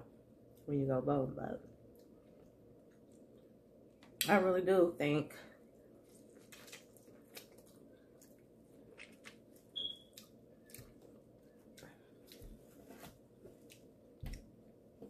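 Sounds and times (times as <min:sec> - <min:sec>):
low room hum: 0:00.0 - 0:15.0
quiet chewing: 0:05.8 - 0:12.9.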